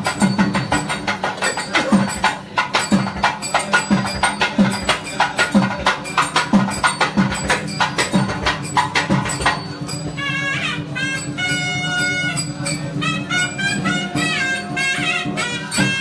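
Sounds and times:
sharp clicking drum strokes: 0.0s - 10.3s.

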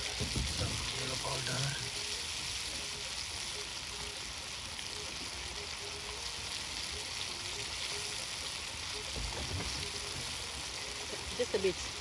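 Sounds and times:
sauce sizzling in a wok: 0.0s - 12.0s.

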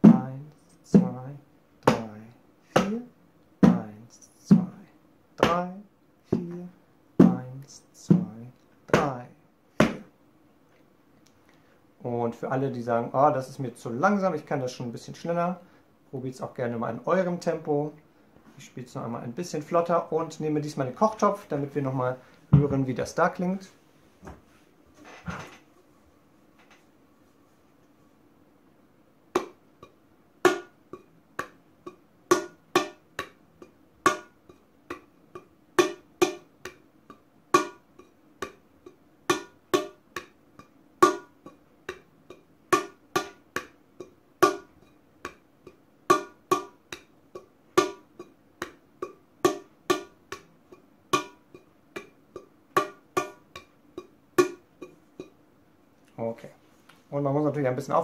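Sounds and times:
hands striking metal pot: 34.0s - 34.3s, 37.5s - 38.6s, 41.0s - 41.3s, 41.9s - 43.7s, 44.4s - 47.1s, 47.8s - 48.8s, 49.4s - 50.5s, 51.1s - 54.6s.

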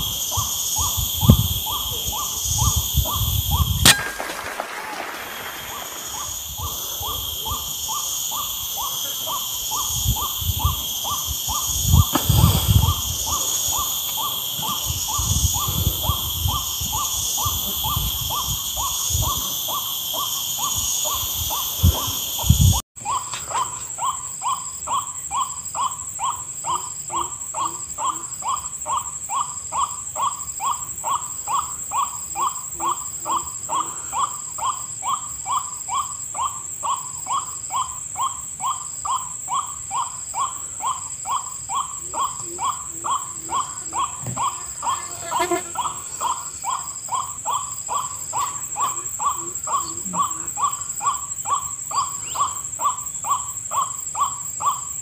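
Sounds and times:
high insect buzz: 0.0s - 4.4s, 5.0s - 22.8s, 42.3s - 53.4s.

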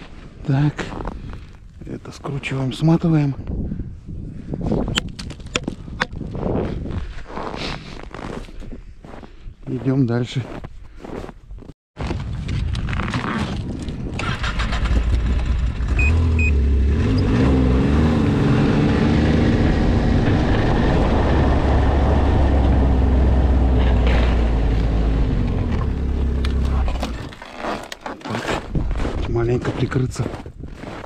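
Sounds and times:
snowmobile engine running: 14.6s - 27.2s.

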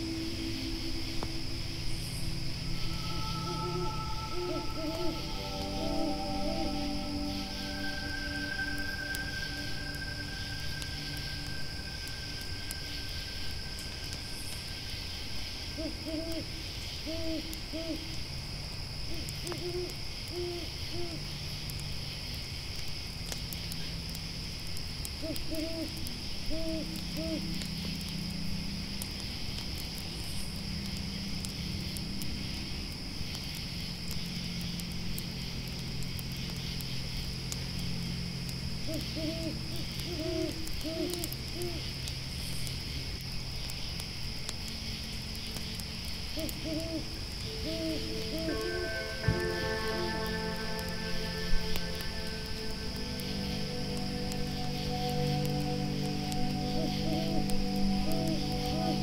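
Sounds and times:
owl hooting: 0.0s - 14.5s, 15.7s - 18.2s, 25.2s - 27.5s, 38.8s - 41.8s, 46.4s - 50.0s, 50.8s - 59.0s
low steady hum: 0.0s - 21.8s, 44.3s - 59.0s
campfire crackling: 0.0s - 59.0s
grasshoppers chirring: 0.0s - 59.0s.

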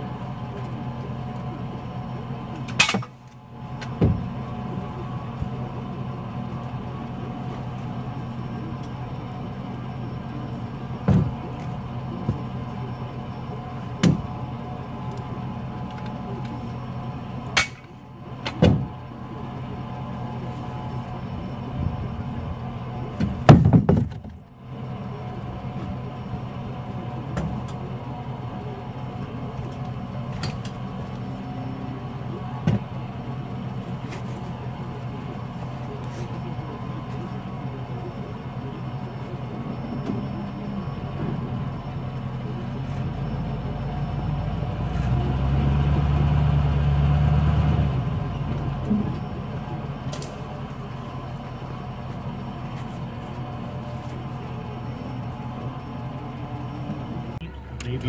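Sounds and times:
truck engine idling: 0.0s - 58.0s
metal knocks and clunks: 23.2s - 24.4s.

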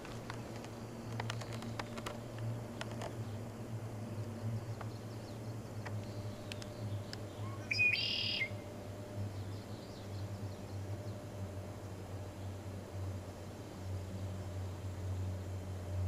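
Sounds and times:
low steady hum: 0.0s - 16.0s
faint high chirps: 6.1s - 8.6s
nuthatch nasal buzzy call: 7.4s - 8.6s.

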